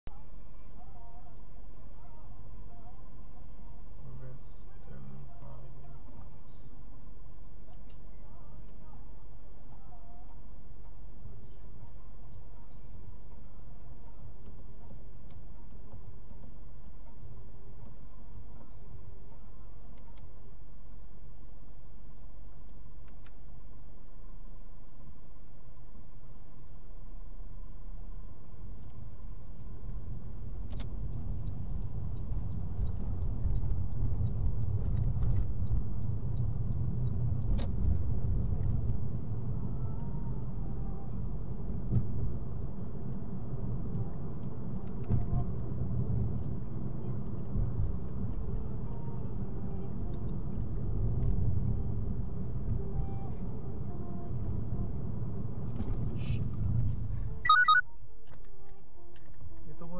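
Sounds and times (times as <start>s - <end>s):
car tyres and engine rumble: 28.4s - 53.6s
sharp high-pitched sound: 57.5s - 57.8s.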